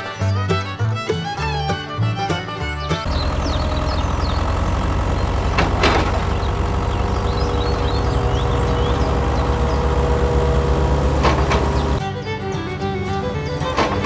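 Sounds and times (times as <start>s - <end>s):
diesel engine idling: 2.1s - 14.0s.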